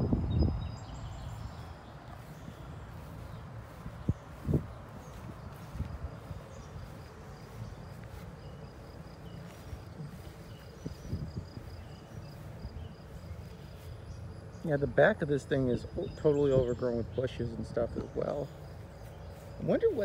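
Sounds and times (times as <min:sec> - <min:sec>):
footsteps in tall grass: 0:00.8 - 0:14.9, 0:16.4 - 0:20.0
insect chirping: 0:00.8 - 0:14.9.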